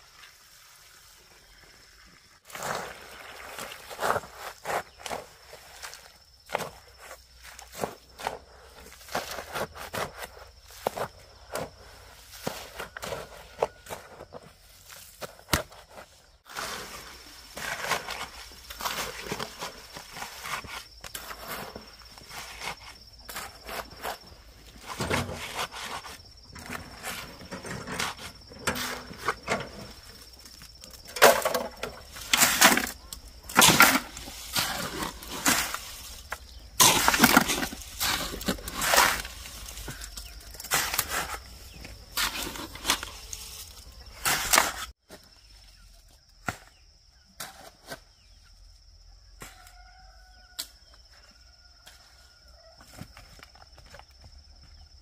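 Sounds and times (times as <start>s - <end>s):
rocks knocking and scraping: 2.5s - 45.3s.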